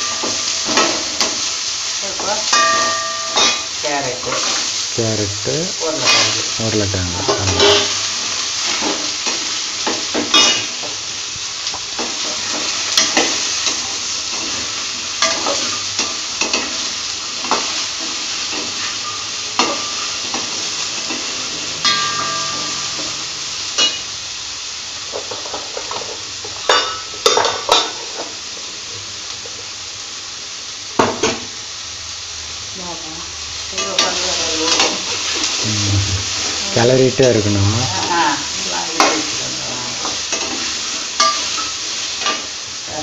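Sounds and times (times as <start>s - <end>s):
vegetables sizzling in oil: 0.0s - 43.0s.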